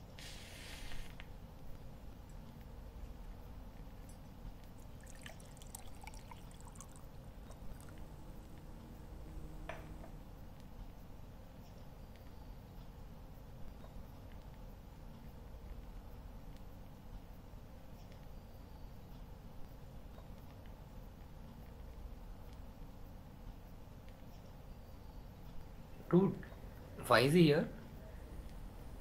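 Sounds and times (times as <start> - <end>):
light hiss: 0.0 - 19.8
low steady hum: 0.0 - 29.0
small drips and splashes: 4.0 - 8.0
liquid being poured: 4.8 - 8.2
low rumble: 7.3 - 10.8.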